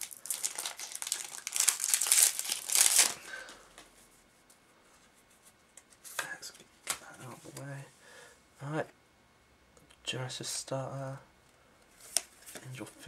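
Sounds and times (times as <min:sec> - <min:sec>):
wrapper crinkling and tearing: 0:00.0 - 0:03.4.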